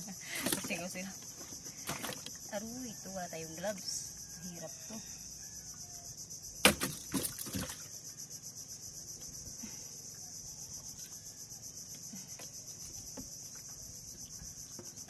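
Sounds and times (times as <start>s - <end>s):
insects chorus pulsing: 0.0s - 15.0s.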